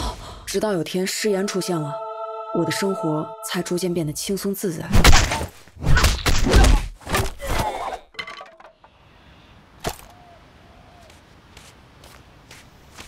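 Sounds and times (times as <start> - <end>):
cartoon punches and thuds: 4.9 - 7.7.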